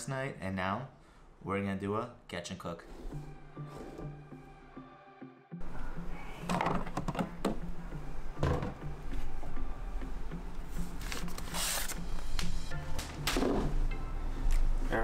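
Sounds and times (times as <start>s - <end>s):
items knocking in cupboard: 6.5s - 7.6s, 8.4s - 8.8s.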